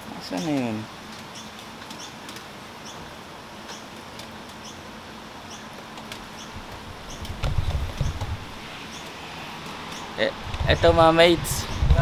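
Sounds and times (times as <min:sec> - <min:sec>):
heavy rain hiss: 0:00.0 - 0:12.0
small bird chirping: 0:00.2 - 0:02.2, 0:02.8 - 0:03.9, 0:04.6 - 0:04.8, 0:05.4 - 0:05.7, 0:06.3 - 0:07.4, 0:08.0 - 0:09.2.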